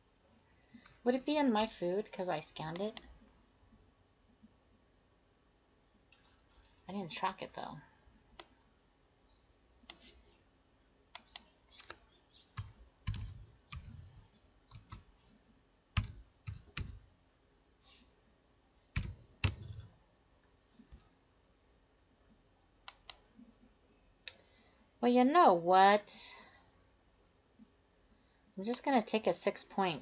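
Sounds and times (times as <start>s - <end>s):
computer keyboard typing: 11.2s - 15.1s, 16.0s - 17.1s, 19.0s - 20.0s.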